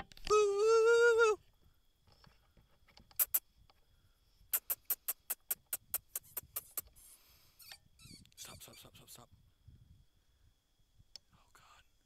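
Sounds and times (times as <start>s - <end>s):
sharp clicks: 4.5s - 6.9s.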